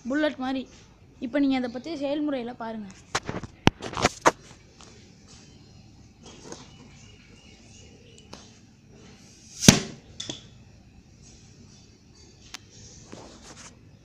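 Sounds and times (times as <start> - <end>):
bottle cannon bang: 9.6 - 10.0.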